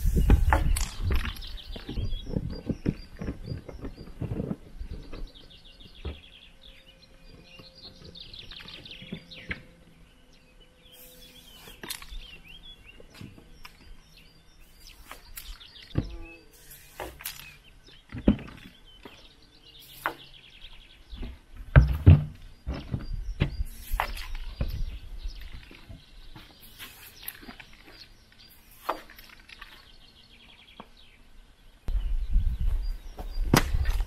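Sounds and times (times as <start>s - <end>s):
birds chirping and trilling: 0.0s - 34.0s
spray paint can hissing: 11.0s - 11.9s, 16.5s - 17.4s, 28.5s - 29.1s.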